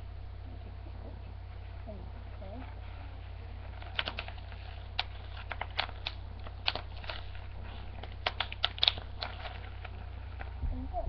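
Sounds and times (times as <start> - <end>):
bubble wrap crackling: 1.4 - 10.6.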